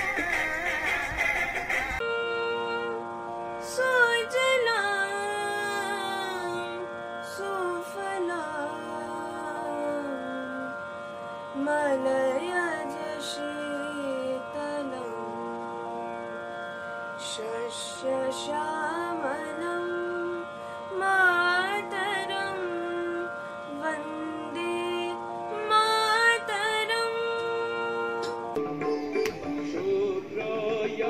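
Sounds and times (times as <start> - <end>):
woman singing: 2.0 - 10.8, 11.6 - 15.4, 17.2 - 28.6.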